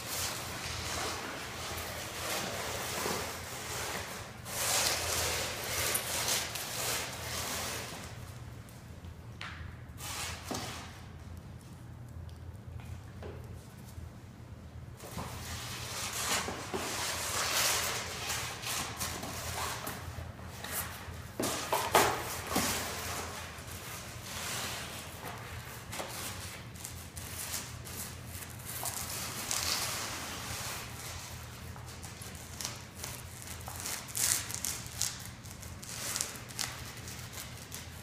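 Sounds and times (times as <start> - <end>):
dogs tearing cardboard and paper: 21.4 - 38.0.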